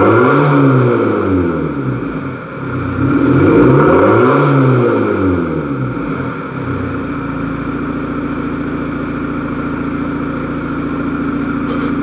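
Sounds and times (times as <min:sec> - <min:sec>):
diesel engine idling loudly: 0:05.9 - 0:12.0.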